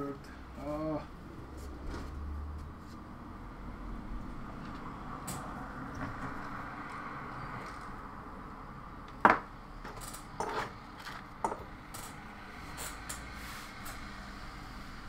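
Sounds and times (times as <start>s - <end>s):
objects knocking on wooden workbench: 9.2s - 9.5s, 11.4s - 11.7s.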